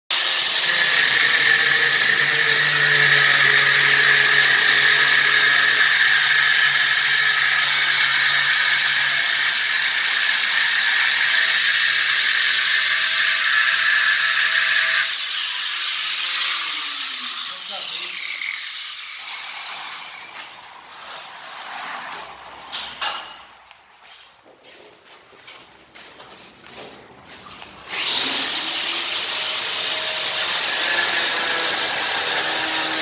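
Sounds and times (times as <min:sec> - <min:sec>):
disc grinding wall coating: 0:00.1 - 0:15.2, 0:18.8 - 0:23.5, 0:27.7 - 0:33.0
angle grinder whining: 0:00.1 - 0:21.3, 0:27.8 - 0:33.0.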